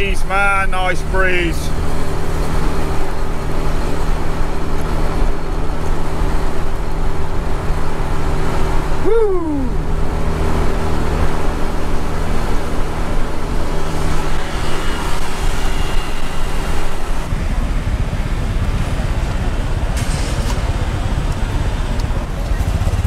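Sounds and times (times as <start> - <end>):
motor scooter engine running: 1.7 - 20.0, 20.6 - 23.0
brief hiss: 20.0 - 20.6.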